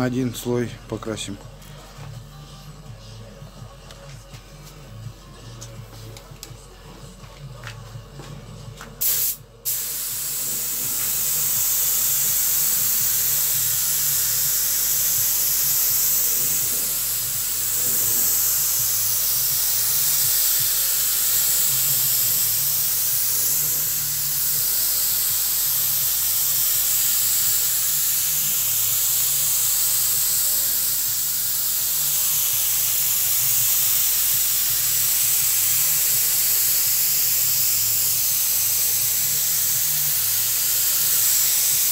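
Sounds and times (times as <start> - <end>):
spray gun hissing: 9.0 - 41.9.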